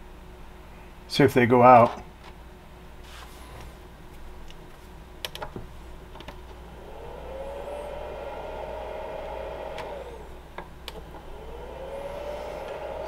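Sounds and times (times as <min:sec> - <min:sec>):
motor-like whine: 0:06.6 - 0:13.0.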